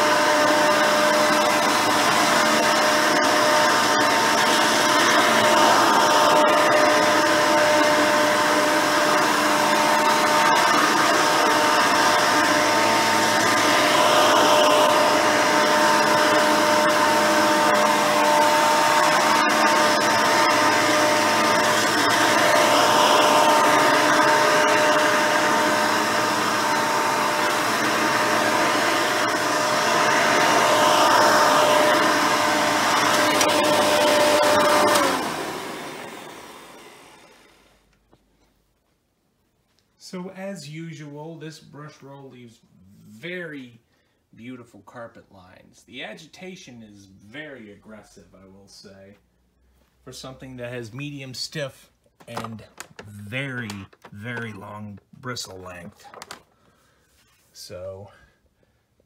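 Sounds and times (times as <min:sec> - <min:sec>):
vacuum cleaner whine: 0:00.0 - 0:38.5, 0:52.2 - 0:54.8.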